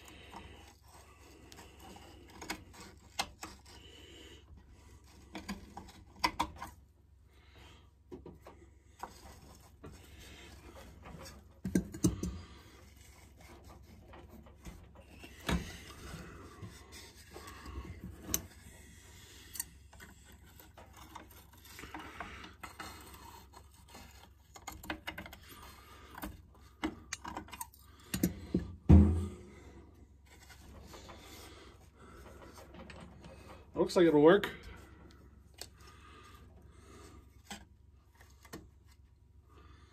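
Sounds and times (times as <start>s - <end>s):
heavy knock: 28.9s - 29.5s.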